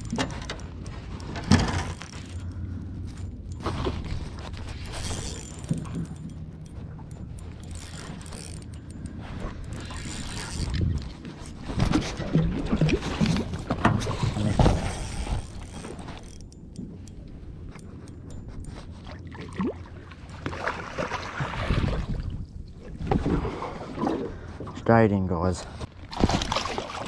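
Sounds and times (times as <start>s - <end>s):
knocks and clattering handling: 0.0s - 2.5s
water lapping against boat: 0.0s - 25.0s, 25.6s - 27.0s
wind on microphone: 9.4s - 13.0s, 21.4s - 23.9s.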